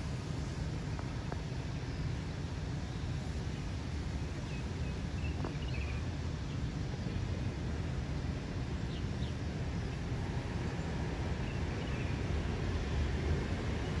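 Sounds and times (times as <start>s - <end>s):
low outdoor rumble: 0.0s - 14.0s
faint bird chirps: 4.4s - 6.7s.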